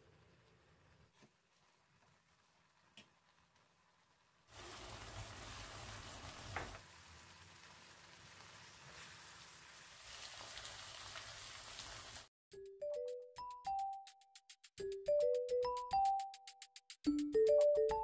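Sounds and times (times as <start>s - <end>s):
sauce bubbling and sizzling: 0.0s - 12.3s.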